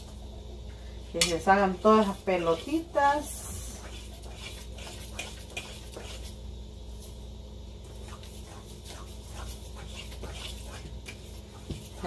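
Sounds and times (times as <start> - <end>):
steady low hum: 0.0 - 12.0
utensil scraping metal bowl: 1.2 - 6.4, 8.0 - 12.0.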